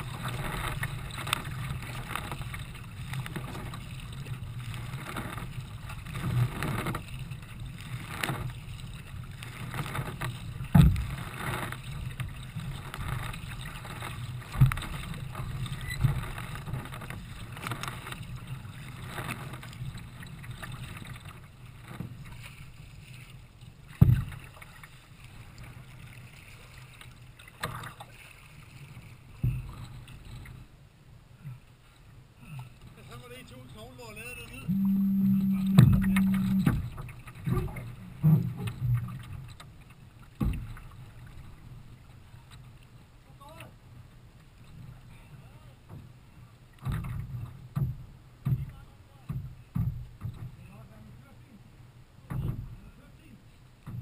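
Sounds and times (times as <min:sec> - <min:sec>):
water splashing past kayak hull: 0:00.0 - 0:54.0
loud thumps: 0:34.7 - 0:37.0.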